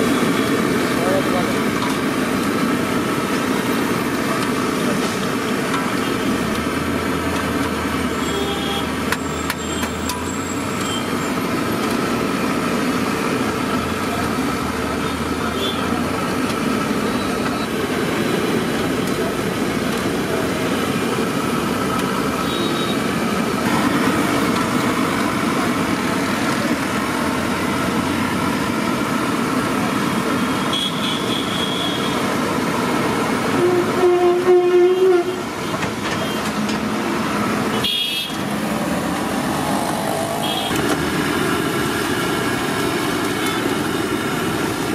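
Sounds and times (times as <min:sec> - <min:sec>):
street traffic: 0:00.0 - 0:44.9
vehicle horn: 0:08.2 - 0:08.9, 0:15.5 - 0:15.9, 0:22.4 - 0:23.0, 0:30.7 - 0:32.2, 0:33.5 - 0:35.4, 0:37.7 - 0:38.4, 0:40.4 - 0:40.8.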